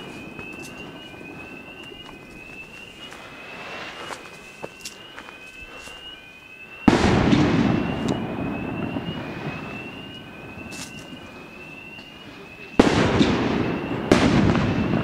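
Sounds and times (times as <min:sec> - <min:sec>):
firework crackling: 0:00.0 - 0:15.0
rising electronic alarm tone: 0:00.0 - 0:15.0
firework bang: 0:06.9 - 0:11.2, 0:12.8 - 0:15.0.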